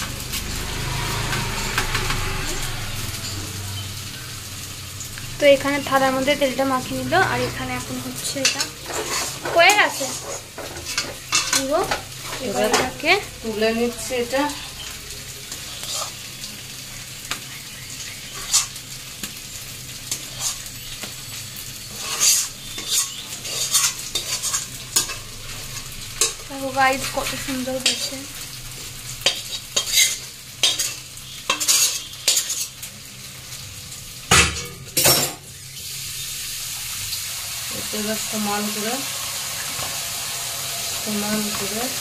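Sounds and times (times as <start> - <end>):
low hum: 0.0 - 8.0
metal spatula scraping pan: 0.3 - 3.8, 7.5 - 13.0, 15.7 - 16.3, 18.3 - 18.8, 20.1 - 28.1, 29.2 - 32.9.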